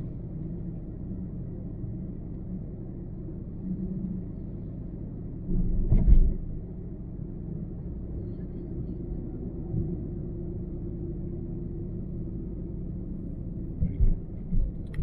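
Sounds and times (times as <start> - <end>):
car tyres and engine rumble: 0.0 - 15.0.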